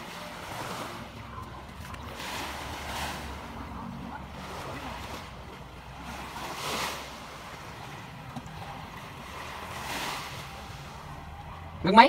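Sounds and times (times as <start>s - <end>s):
waves washing onto sandy beach: 0.0s - 11.9s.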